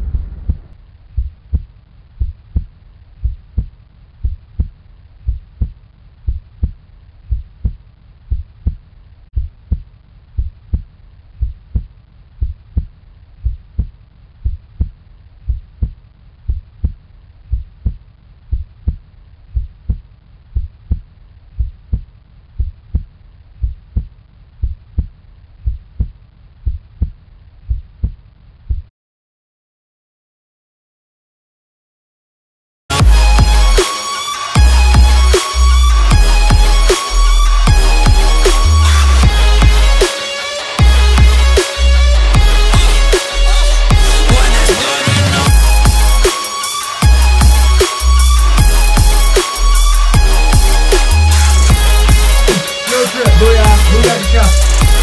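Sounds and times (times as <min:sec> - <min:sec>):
heartbeat double thump: 0:00.0 - 0:28.9.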